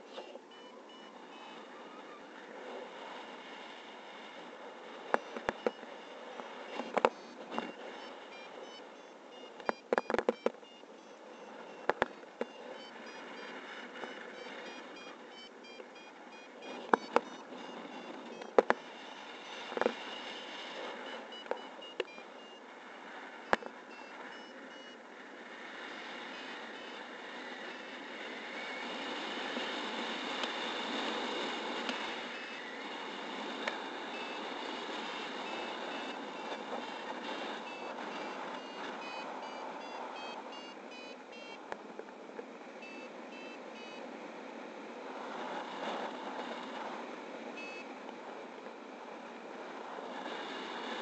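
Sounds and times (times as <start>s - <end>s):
wind rushing over microphone: 0.0s - 51.0s
rapid electronic beeps: 0.5s - 1.5s, 5.2s - 20.3s, 21.0s - 22.6s, 23.9s - 25.0s, 34.1s - 34.4s, 37.6s - 41.6s, 42.8s - 44.0s.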